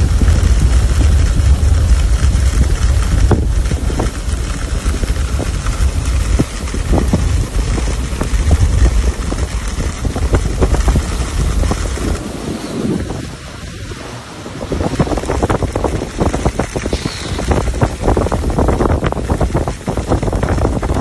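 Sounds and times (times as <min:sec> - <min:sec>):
heavy rain pouring: 0:00.0 - 0:21.0
wind buffeting microphone: 0:00.0 - 0:21.0
short crackles: 0:14.8 - 0:21.0.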